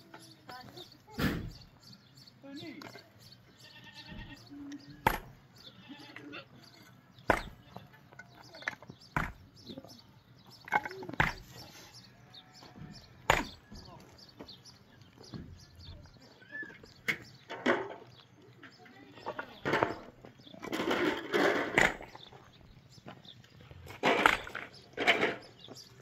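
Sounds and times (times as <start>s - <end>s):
livestock bleating: 3.5s - 6.6s.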